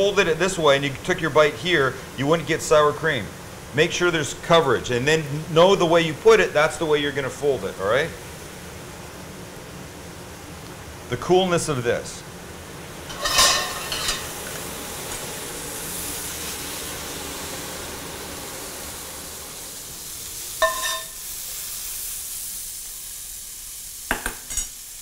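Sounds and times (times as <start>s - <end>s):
fish sizzling in a pan: 12.8s - 25.0s.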